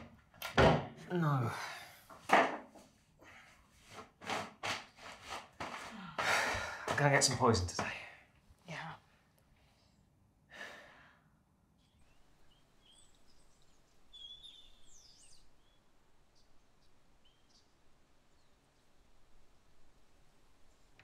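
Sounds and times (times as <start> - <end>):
person sighing: 1.1 - 2.0, 5.9 - 6.9, 10.5 - 11.2
high bird chirps: 11.8 - 17.7.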